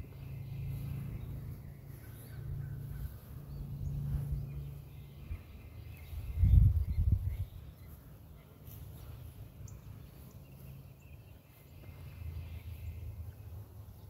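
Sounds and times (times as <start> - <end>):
wind rumble on microphone: 0.0 - 8.0
steady low rumble: 0.0 - 14.0.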